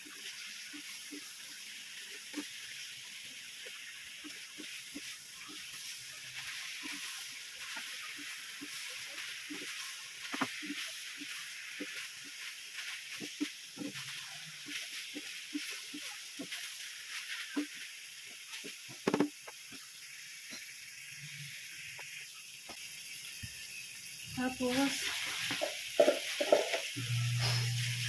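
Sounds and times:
pork sizzling in a pan: 0.0 - 28.0
wooden spatula scraping a pan: 3.6 - 17.9, 25.2 - 26.9.

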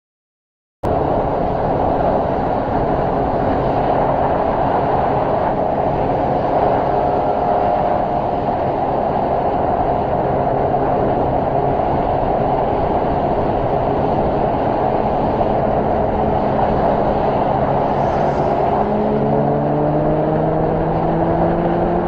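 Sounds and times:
wind rush on microphone: 0.8 - 22.0
motorcycle engine drone: 0.9 - 22.0.

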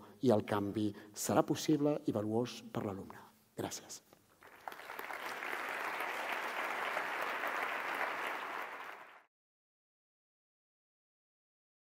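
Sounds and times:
audience applauding: 4.4 - 9.3.

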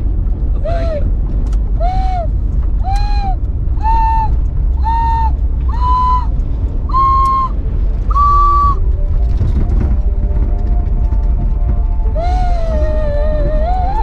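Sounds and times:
van engine and road rumble: 0.0 - 14.0
ocarina playing slow notes: 1.8 - 6.3, 6.9 - 9.1, 11.8 - 14.0.

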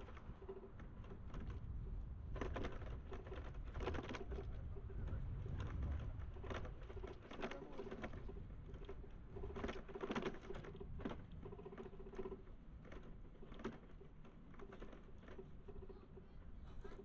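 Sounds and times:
bicycle clicking and rattling: 0.0 - 16.3.

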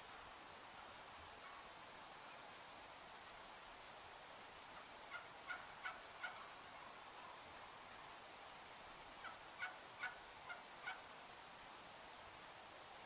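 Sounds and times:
faint outdoor hiss: 0.0 - 13.0
wild turkeys calling: 4.8 - 7.4, 9.2 - 11.0.

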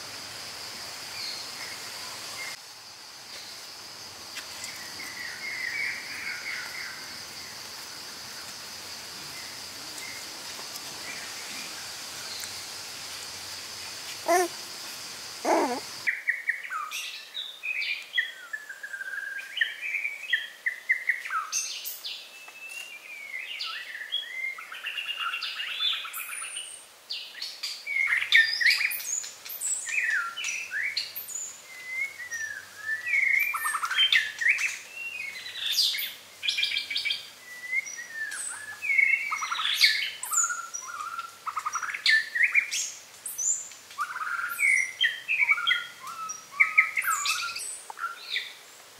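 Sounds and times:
birds chirping: 14.2 - 16.1.

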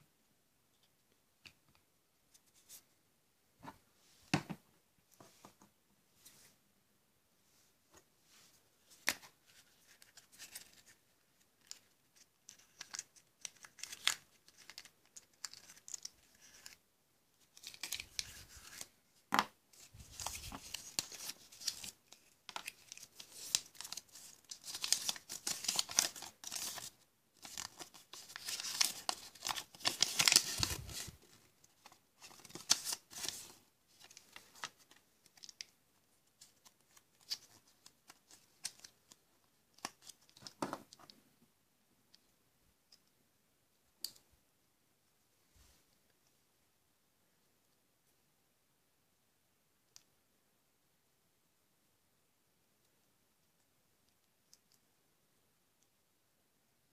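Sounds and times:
wrapper crinkling and tearing: 12.5 - 16.8, 20.1 - 35.7
paper leaflet rustling: 19.8 - 35.7.

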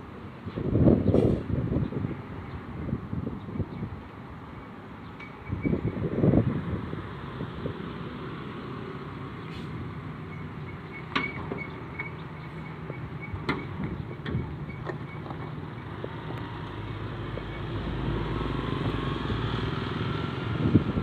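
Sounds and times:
traffic noise: 0.0 - 21.0
motorbikes approaching: 11.7 - 21.0.

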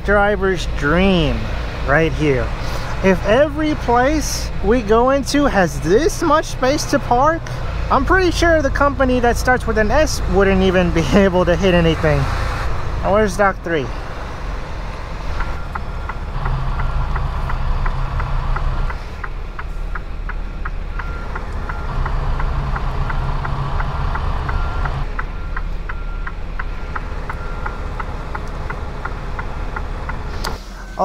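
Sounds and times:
diesel truck engine: 0.0 - 31.0
backup alarm beeping: 15.4 - 16.2, 20.9 - 22.0, 24.5 - 28.4, 30.7 - 31.0.

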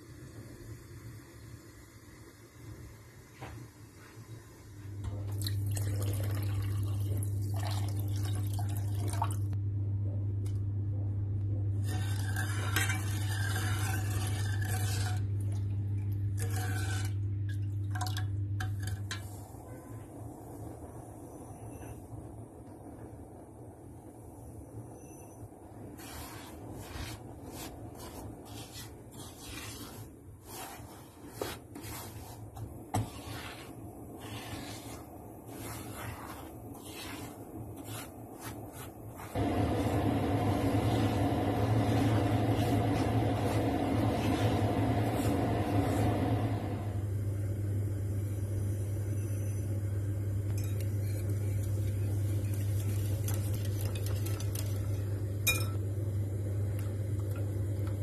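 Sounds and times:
steady low hum: 0.0 - 58.0
spatula scraping semolina in pan: 11.8 - 15.4, 16.4 - 17.3, 25.9 - 46.7
wire whisk clinking in bowl: 55.4 - 55.8.

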